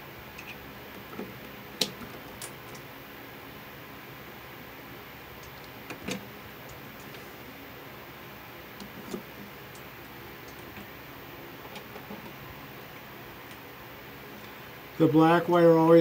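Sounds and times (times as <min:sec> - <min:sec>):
steady background hum: 0:00.0 - 0:16.0
light clicks and knocks of wires: 0:00.4 - 0:02.9, 0:05.4 - 0:07.2, 0:11.6 - 0:12.4.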